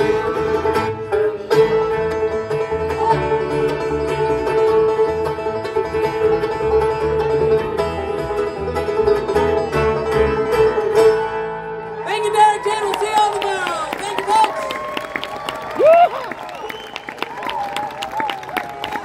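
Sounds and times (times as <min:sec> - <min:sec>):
banjo: 0:00.0 - 0:12.2
bluegrass band playing: 0:00.0 - 0:19.0.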